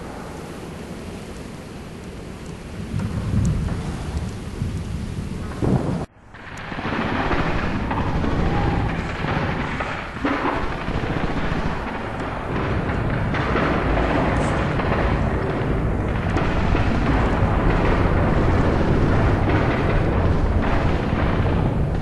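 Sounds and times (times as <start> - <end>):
low rumbling noise: 0.0 - 22.0
heavy thuds: 5.5 - 22.0.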